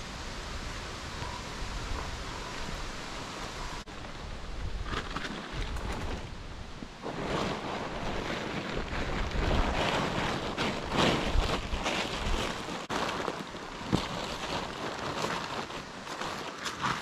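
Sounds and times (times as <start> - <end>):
tent fabric rustling and crinkling: 3.6 - 17.0.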